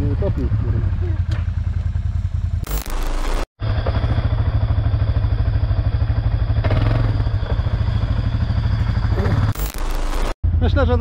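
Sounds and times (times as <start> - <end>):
quad bike engine running: 0.0 - 2.6, 3.6 - 9.6.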